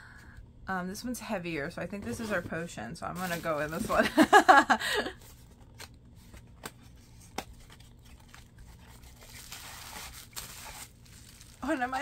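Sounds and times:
paper rustling: 3.2s - 4.2s, 5.2s - 12.0s
woman laughing: 3.8s - 5.2s.

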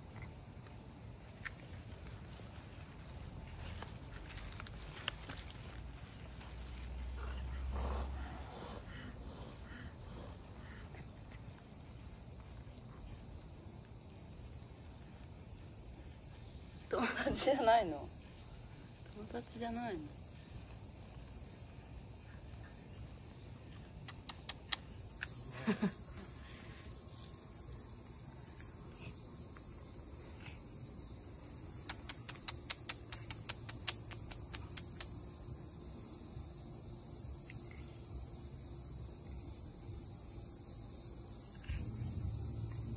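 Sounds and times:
kitten hissing: 7.2s - 10.8s
high-pitched insect chirring: 7.4s - 11.4s, 22.1s - 25.1s.

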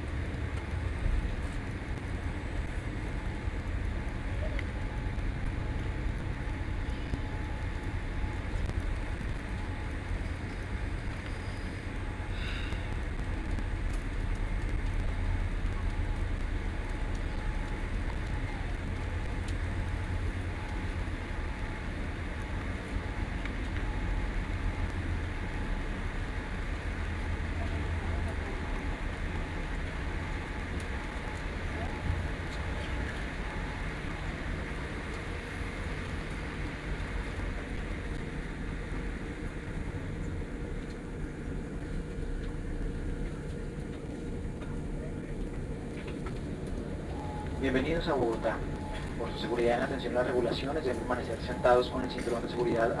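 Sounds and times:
airliner cabin rumble: 0.0s - 53.0s
rush of air: 11.3s - 13.6s.

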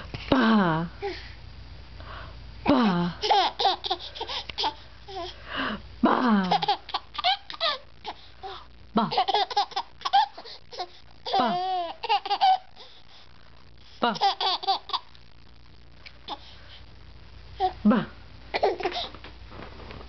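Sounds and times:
baby laughing: 3.2s - 5.4s, 6.4s - 8.2s, 9.0s - 12.8s, 14.1s - 15.1s, 18.5s - 19.1s.

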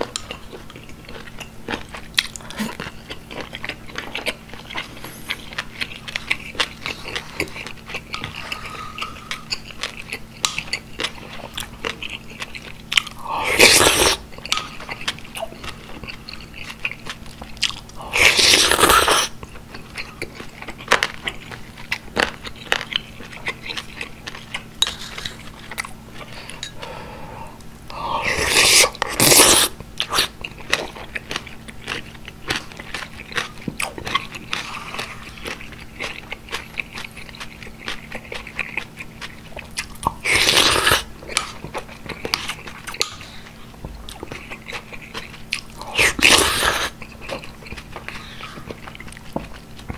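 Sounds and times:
chewing food: 0.0s - 26.8s, 27.6s - 49.9s.

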